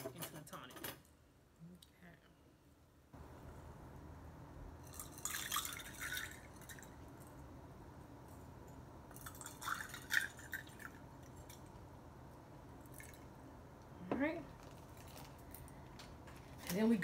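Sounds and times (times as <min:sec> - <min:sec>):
liquid pouring and splashing: 0:04.9 - 0:07.0, 0:09.1 - 0:11.6.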